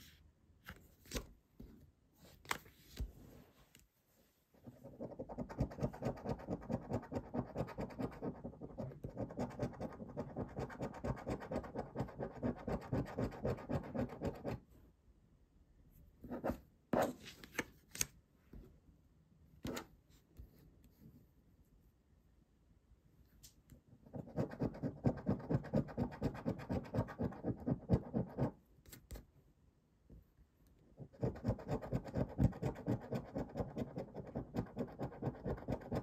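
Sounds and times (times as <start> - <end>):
coin scratching a scratch card: 31.2 - 36.0.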